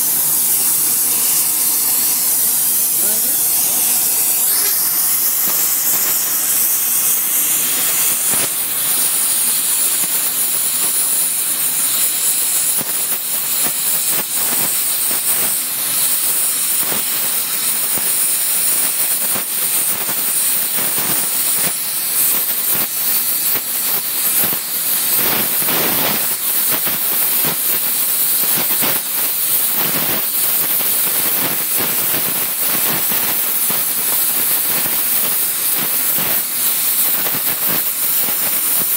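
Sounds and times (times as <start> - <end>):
torch flame hissing: 0.0 - 38.9.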